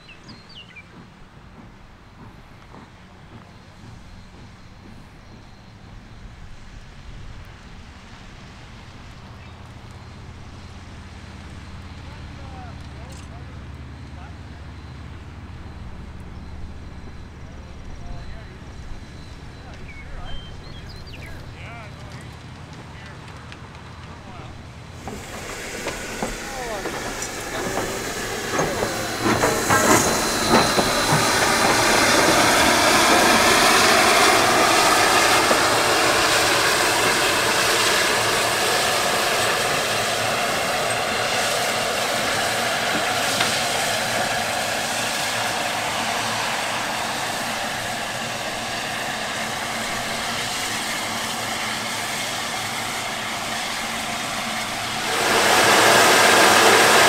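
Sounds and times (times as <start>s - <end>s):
steam locomotive hissing: 0.0s - 57.0s
steady rush of noise: 24.3s - 57.0s.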